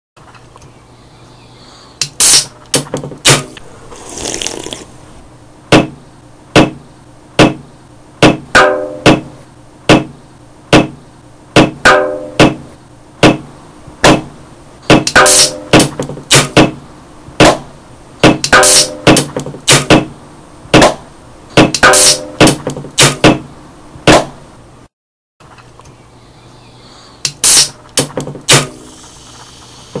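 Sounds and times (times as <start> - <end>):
short hiss: 2.0 - 2.5, 28.7 - 30.0.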